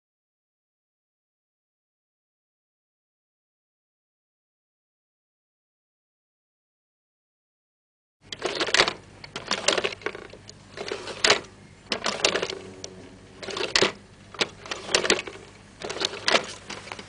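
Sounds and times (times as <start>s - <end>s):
mechanical clattering clicks: 8.3s - 17.0s.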